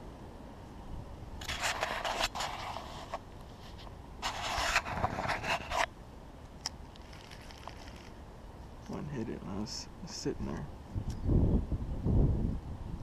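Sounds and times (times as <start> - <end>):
rustling and scraping: 1.4 - 5.9, 6.9 - 8.2.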